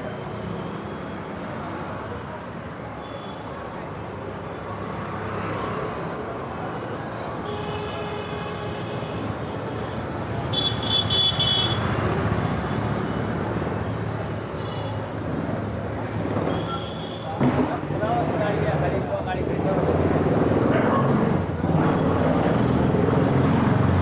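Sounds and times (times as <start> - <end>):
traffic engines running: 0.0 - 24.0
car horns honking: 10.4 - 11.9.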